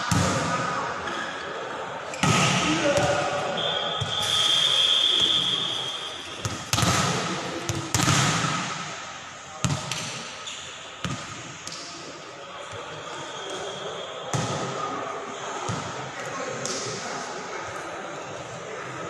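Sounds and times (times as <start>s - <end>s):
players' voices: 0.0s - 19.0s
referee's whistle: 3.5s - 6.5s, 13.1s - 14.5s
volleyball smacks echoing: 6.4s - 8.9s.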